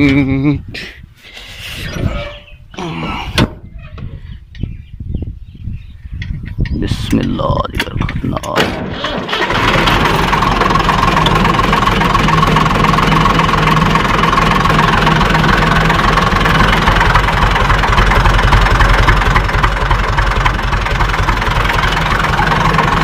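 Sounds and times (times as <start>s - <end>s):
tractor diesel engine idling: 8.7s - 23.0s.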